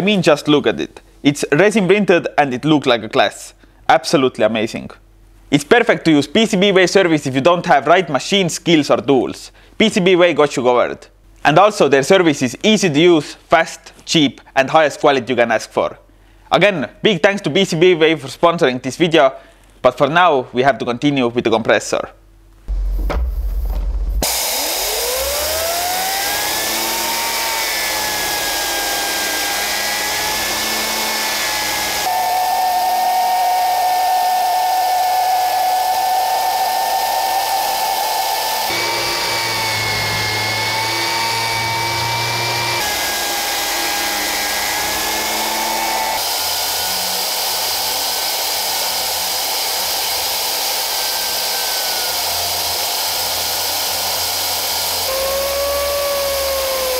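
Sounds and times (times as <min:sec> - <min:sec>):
turbine whine: 0:22.7 - 0:56.9.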